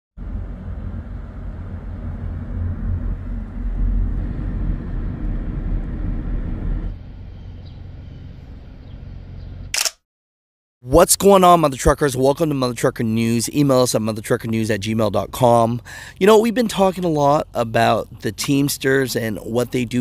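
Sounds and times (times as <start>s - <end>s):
car driving road and engine noise: 0.2s - 9.7s.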